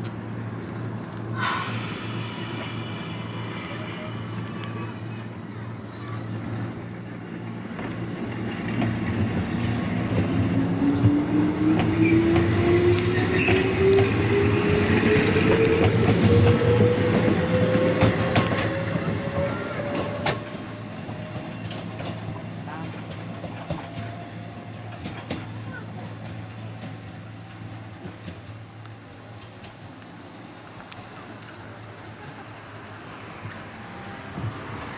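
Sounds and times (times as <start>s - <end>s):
train motor whine rising: 1.4s - 21.0s.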